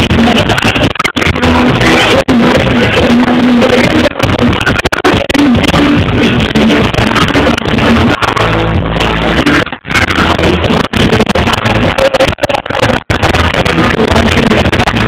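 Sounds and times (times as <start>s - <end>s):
distorted dance song: 0.0s - 15.0s.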